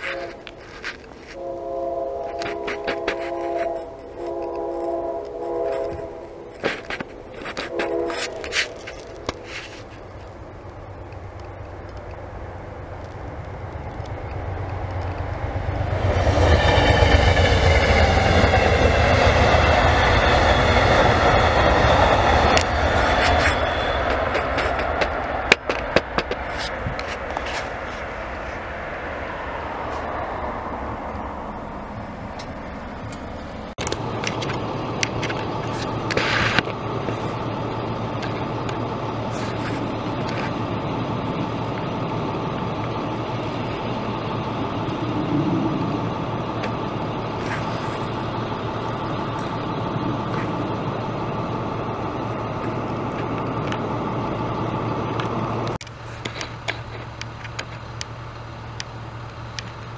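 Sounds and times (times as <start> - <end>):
scattered clicks: 2.3 - 15.9
engine humming steadily: 17.1 - 59.9.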